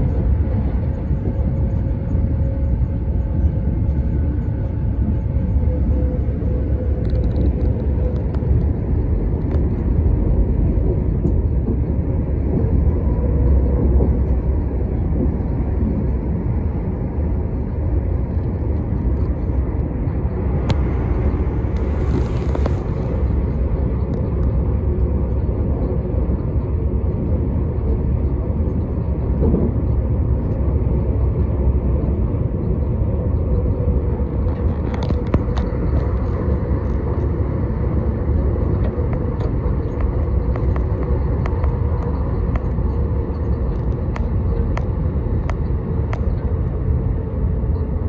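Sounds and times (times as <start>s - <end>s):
train wheels rumbling on rail: 0.0s - 48.0s.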